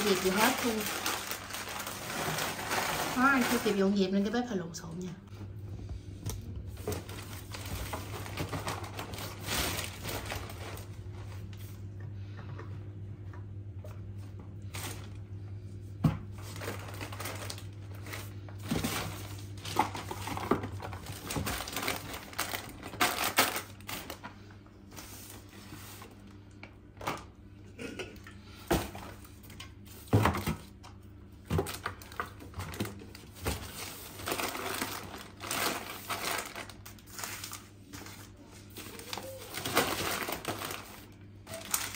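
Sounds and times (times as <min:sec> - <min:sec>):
plastic bag rustling: 0:00.0 - 0:04.3, 0:06.6 - 0:11.8, 0:16.3 - 0:26.3, 0:31.5 - 0:41.9.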